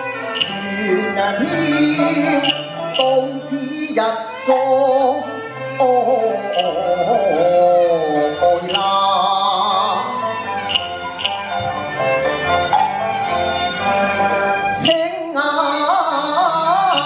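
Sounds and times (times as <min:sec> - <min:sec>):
live instrumental accompaniment: 0:00.0 - 0:17.0
man singing opera into microphone: 0:00.3 - 0:10.3, 0:14.8 - 0:17.0
sharp percussion click: 0:00.4 - 0:00.7, 0:02.4 - 0:03.2, 0:06.6 - 0:06.8, 0:10.7 - 0:11.5.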